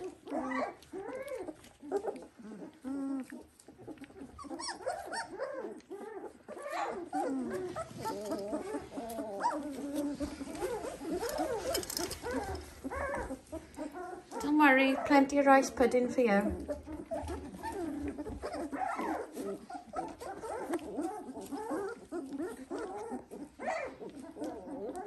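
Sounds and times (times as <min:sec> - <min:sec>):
puppies whining and yipping: 0:00.0 - 0:25.0.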